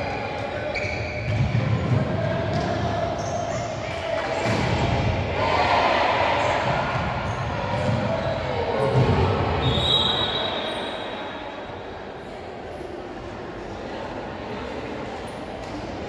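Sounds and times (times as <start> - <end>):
referee's whistle: 9.6 - 11.3.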